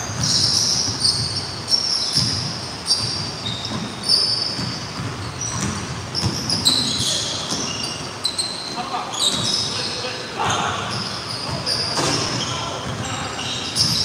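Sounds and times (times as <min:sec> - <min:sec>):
basketball bouncing on hardwood floor: 0:00.0 - 0:01.4, 0:02.1 - 0:07.7
sneaker squeaks: 0:00.0 - 0:14.0.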